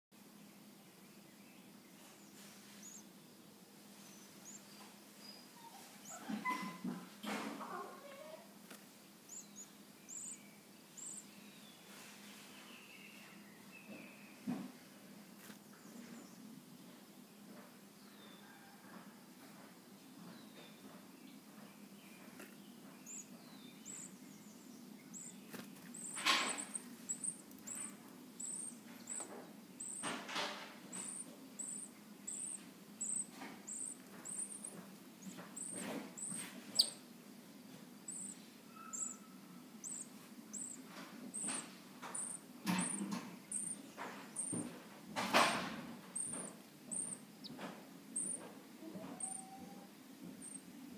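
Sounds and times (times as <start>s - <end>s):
nestlings begging peeps: 1.7s - 3.2s, 3.9s - 6.9s, 9.2s - 11.7s, 22.4s - 37.1s, 38.1s - 44.7s, 45.3s - 50.7s.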